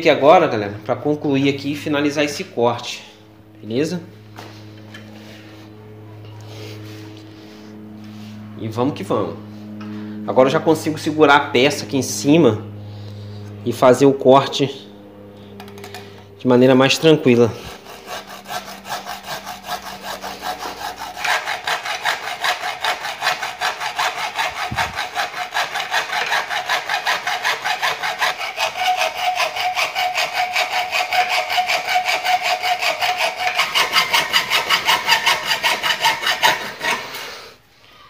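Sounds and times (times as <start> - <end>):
hacksaw cutting metal: 17.3 - 37.4.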